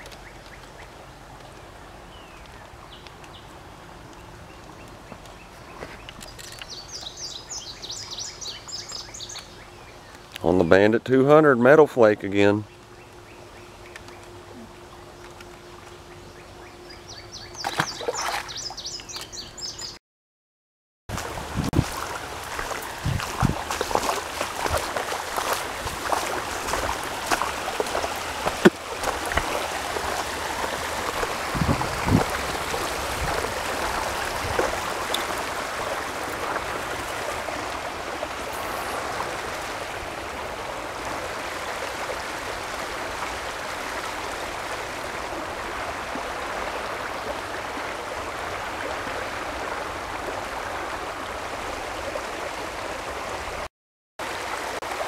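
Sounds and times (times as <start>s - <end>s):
creek water running over rocks: 17.6s - 19.8s, 21.1s - 55.0s.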